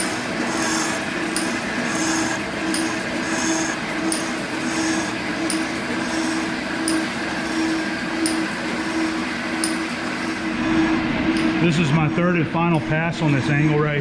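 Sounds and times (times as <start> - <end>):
metal shaper machine hum: 0.0 - 14.0
sharp machine click: 2.6 - 3.0, 4.0 - 4.4, 5.4 - 5.7, 6.8 - 7.0.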